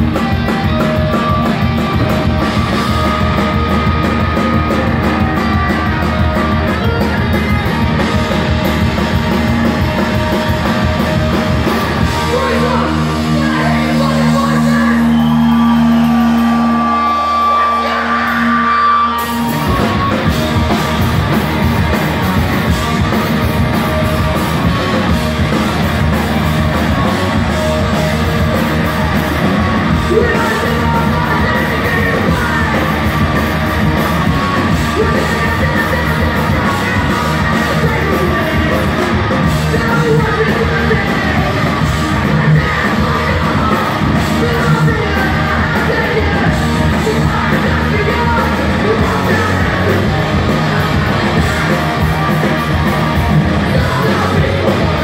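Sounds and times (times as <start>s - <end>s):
live punk band playing: 0.0s - 55.0s
person singing: 29.9s - 52.4s, 53.5s - 55.0s.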